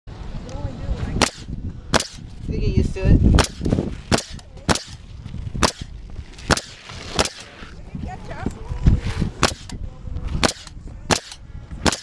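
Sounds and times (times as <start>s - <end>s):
nail gun shots: 1.2s - 2.3s, 3.4s - 5.0s, 5.6s - 7.5s, 9.4s - 9.8s, 10.4s - 12.0s.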